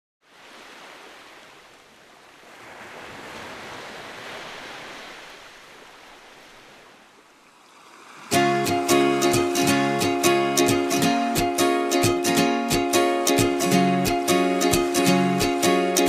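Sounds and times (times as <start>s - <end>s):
small waves washing ashore: 0.2s - 16.0s
ukulele tune: 8.3s - 16.0s.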